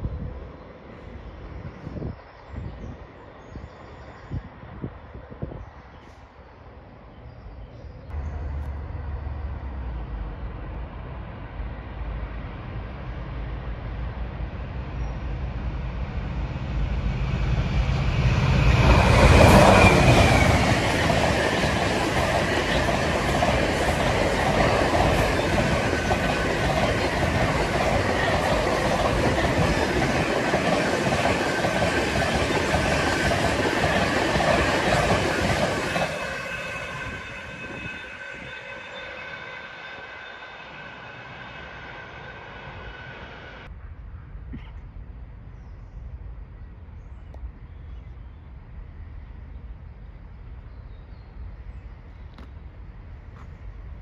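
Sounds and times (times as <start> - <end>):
diesel locomotive engine drone: 0.0 - 54.0
freight train wheels passing: 8.1 - 44.4.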